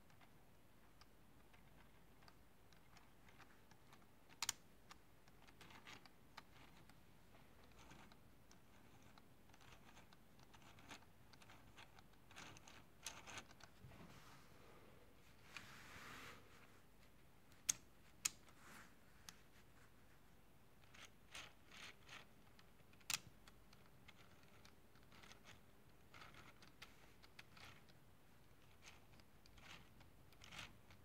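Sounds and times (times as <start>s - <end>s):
plastic toy parts clicking: 0.1s - 7.0s, 7.6s - 13.7s, 17.5s - 18.5s, 20.8s - 31.0s.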